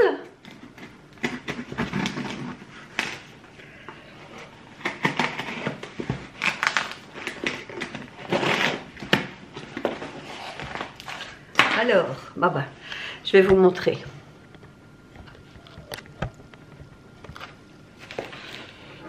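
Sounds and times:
packaging rustling and tearing: 4.8s - 11.5s.

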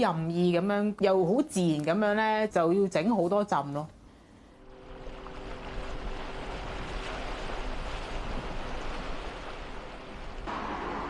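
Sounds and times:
wind: 4.0s - 11.0s
sea water washing: 4.6s - 11.0s.

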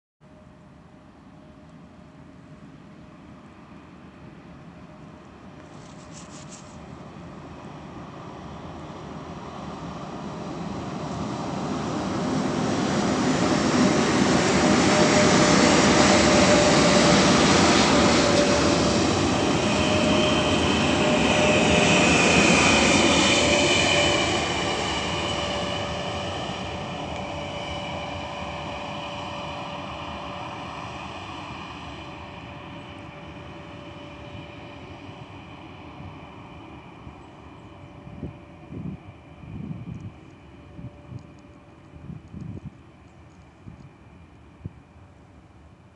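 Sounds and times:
electric locomotive whine: 0.2s - 45.9s.

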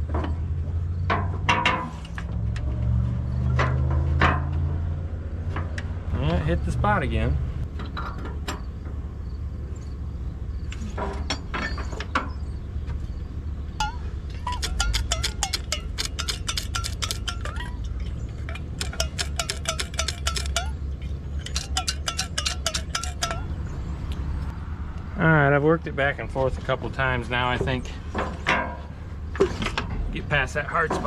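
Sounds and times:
ratchet wrench clicking: 14.5s - 17.7s, 18.5s - 20.8s.

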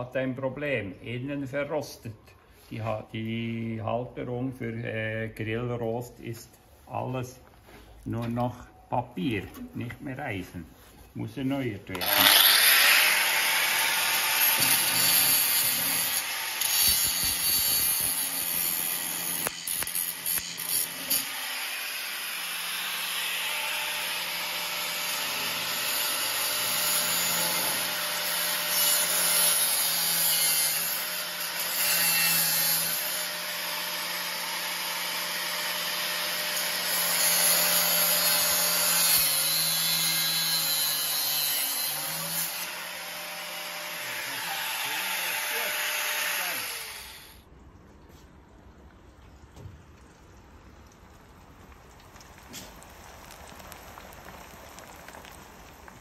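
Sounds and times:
angle grinder grinding steel: 11.9s - 47.4s.

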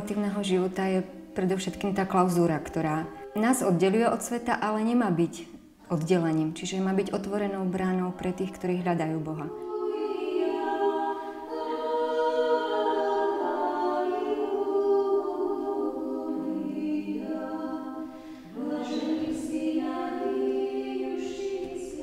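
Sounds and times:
women singing unaccompanied chant: 0.0s - 22.0s.

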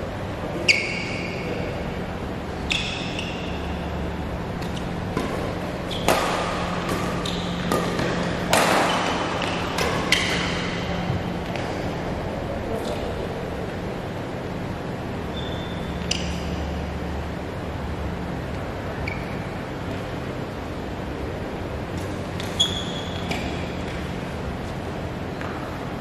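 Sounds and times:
rackets striking shuttlecock: 4.6s - 11.9s.

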